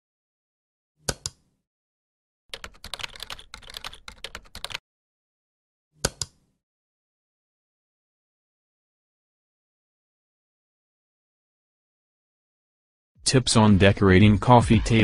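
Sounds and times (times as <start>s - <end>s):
mouse clicks: 1.0s - 1.4s, 6.0s - 6.4s
keyboard typing: 2.5s - 4.8s.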